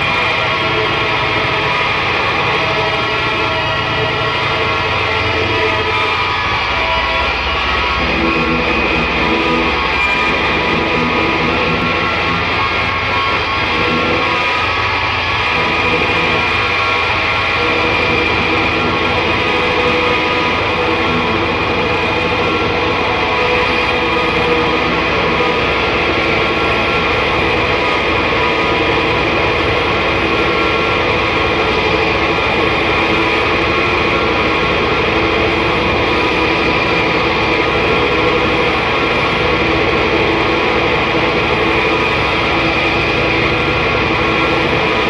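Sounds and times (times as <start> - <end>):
distorted noise drone: 0.0 - 45.0
sustained tones: 0.0 - 45.0.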